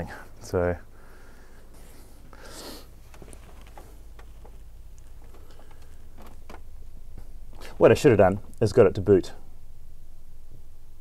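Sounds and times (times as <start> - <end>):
computer cooling fans humming: 0.0 - 11.0
soft rustle: 0.2 - 8.6
light handling ticks: 1.8 - 7.8.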